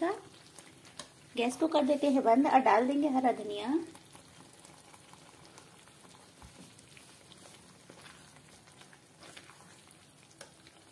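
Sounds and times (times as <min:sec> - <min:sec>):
curry bubbling and crackling: 0:00.0 - 0:10.9
ladle stirring: 0:03.9 - 0:10.9.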